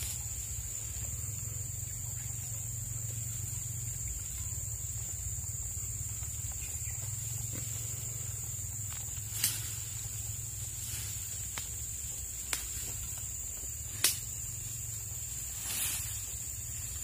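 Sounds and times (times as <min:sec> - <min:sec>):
high-pitched insect drone: 0:00.0 - 0:17.0
sharp snaps: 0:09.3 - 0:09.8, 0:12.4 - 0:12.9, 0:13.9 - 0:14.3.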